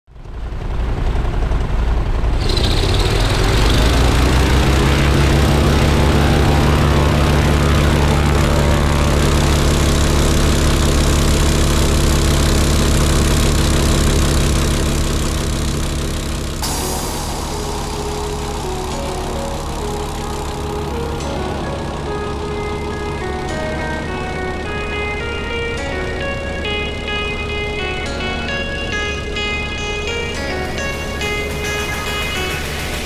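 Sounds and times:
aircraft engine revving: 0.2s - 25.6s.

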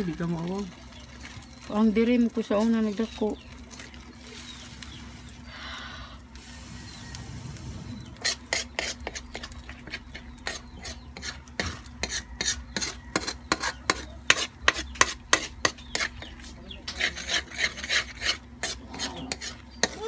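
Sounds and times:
pan sizzling: 6.2s - 16.2s
metal spoon scraping a wok: 8.0s - 20.0s.

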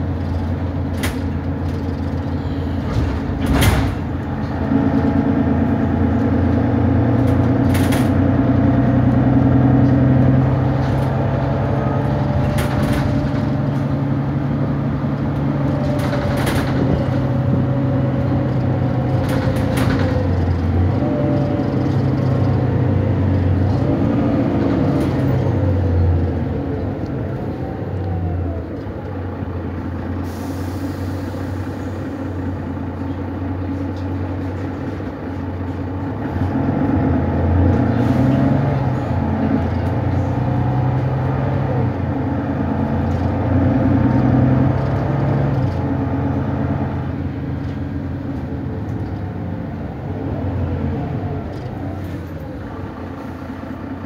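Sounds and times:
bus engine pulling through gears: 0.0s - 54.0s
hiss of air: 30.2s - 32.1s.

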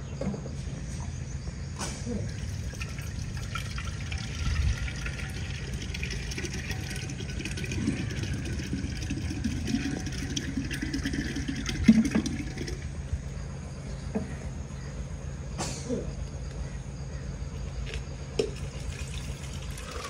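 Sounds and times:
water running: 2.3s - 12.9s, 18.6s - 20.0s.

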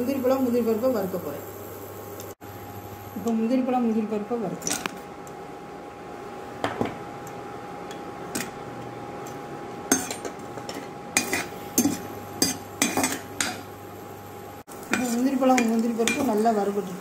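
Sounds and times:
nuts frying in ghee: 0.0s - 5.0s, 9.8s - 17.0s
faint hum: 0.0s - 17.0s
spatula clinking and scraping pan: 9.9s - 13.7s, 14.9s - 16.4s.

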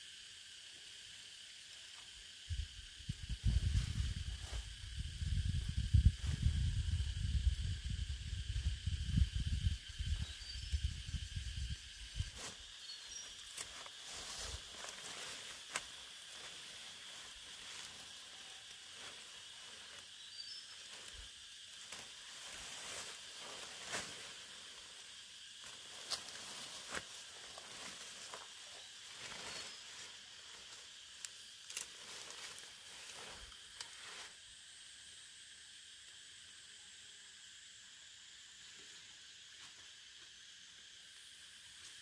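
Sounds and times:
insects buzzing: 0.0s - 42.0s
rustling of vines: 11.9s - 34.3s
stems snapping: 31.2s - 32.0s.

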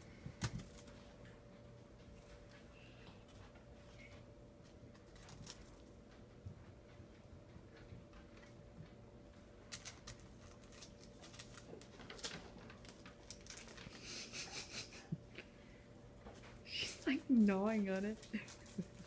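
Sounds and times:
cat gnawing plastic: 0.0s - 2.6s, 3.2s - 14.3s, 18.1s - 19.0s
plastic wrapper crinkling: 9.7s - 14.0s.

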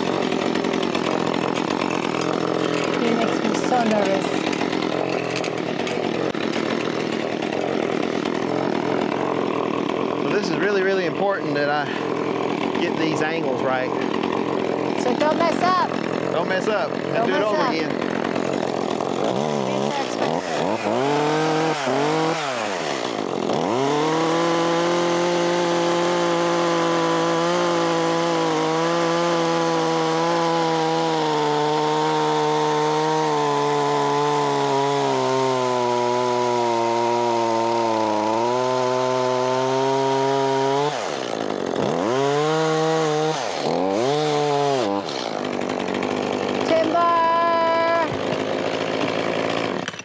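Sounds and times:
chainsaw cutting wood: 0.0s - 50.0s.

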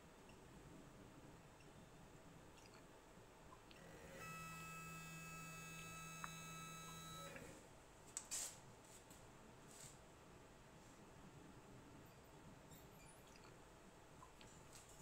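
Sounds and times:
motorized fence electric whine: 3.8s - 7.5s.

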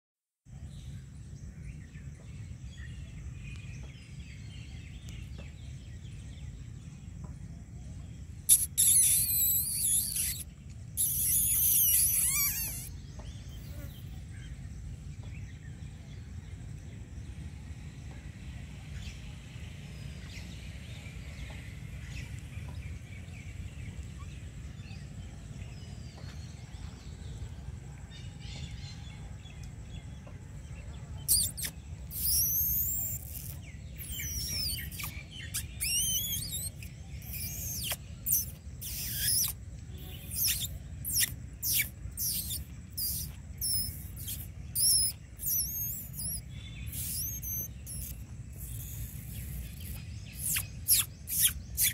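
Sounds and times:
high-pitched bird chirps: 8.4s - 13.0s, 31.2s - 51.9s.

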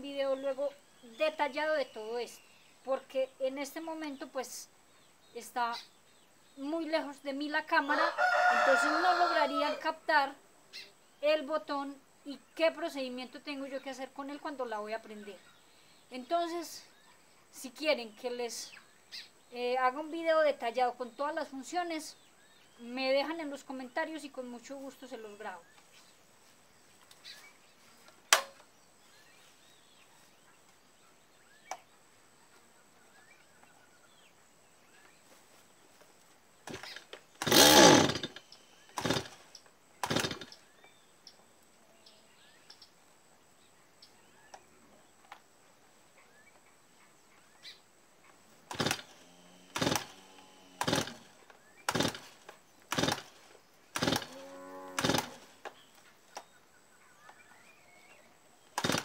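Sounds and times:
sharp click: 28.3s - 28.7s
chainsaw starter cord pulls: 36.7s - 39.4s, 40.0s - 40.6s, 48.7s - 54.4s, 55.0s - 55.6s, 58.8s - 59.0s.

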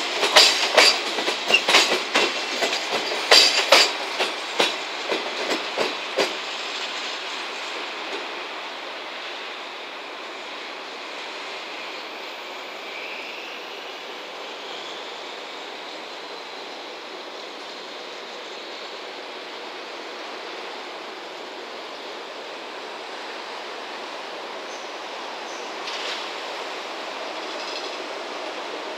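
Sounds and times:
train rumbling over tracks: 0.0s - 28.9s
faint high squeal: 11.7s - 16.0s.

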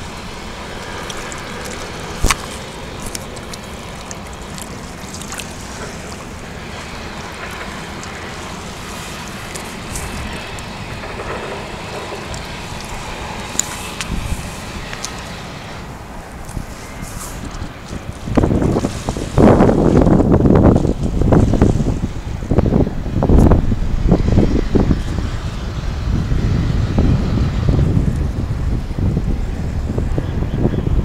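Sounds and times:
harbour water: 0.0s - 31.0s
wind buffeting microphone: 0.0s - 31.0s.

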